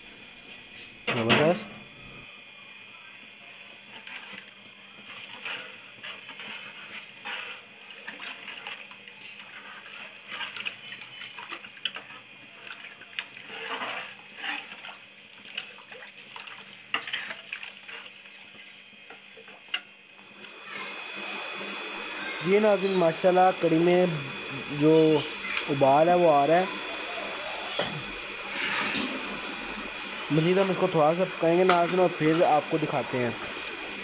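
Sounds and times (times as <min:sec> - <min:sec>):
liquid sloshing in a pot: 0:03.9 - 0:20.5.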